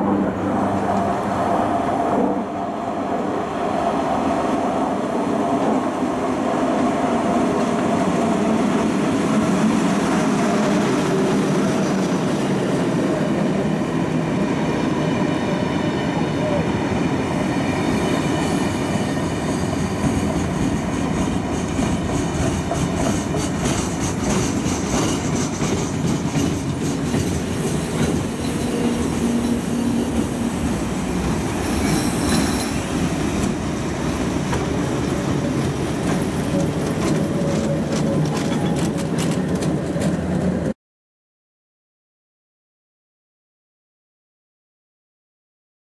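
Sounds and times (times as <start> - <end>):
train wheels clattering over rail joints: 34.4 - 40.7.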